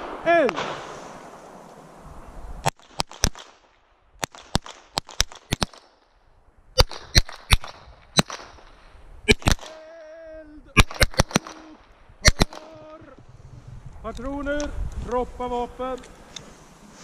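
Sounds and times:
pistol shots echoing: 9.3s - 9.8s, 10.8s - 13.0s.

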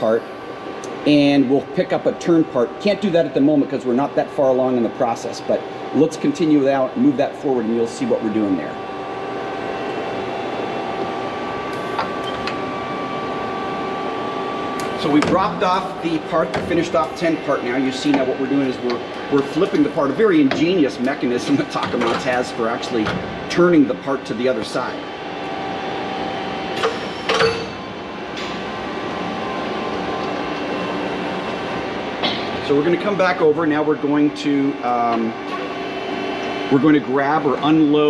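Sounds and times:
lathe loader mechanical hum: 0.0s - 38.0s
whining machine tones: 0.0s - 38.0s.

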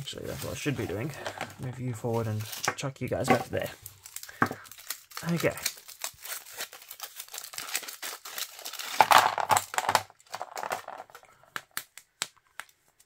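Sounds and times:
foil wrapper crinkling: 3.3s - 11.2s.

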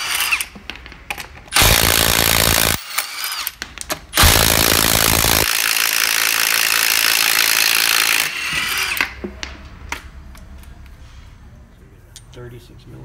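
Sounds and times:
impact wrench hammering: 1.5s - 9.2s.

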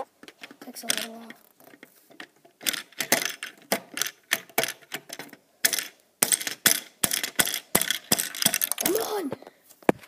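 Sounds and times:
plastic toy pieces clicking: 0.4s - 9.1s.

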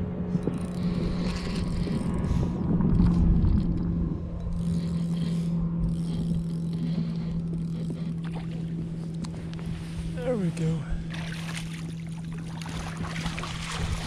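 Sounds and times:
boat motor humming: 0.0s - 14.0s
low rumbling noise: 0.0s - 14.0s
rod and reel handling: 0.4s - 9.6s.

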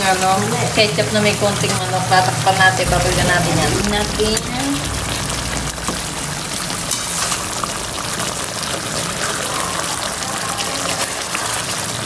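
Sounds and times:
sauce bubbling and sizzling: 3.1s - 12.0s.

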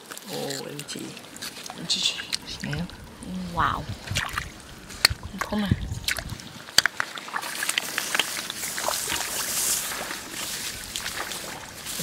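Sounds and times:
water splashing in mud: 0.5s - 12.0s.

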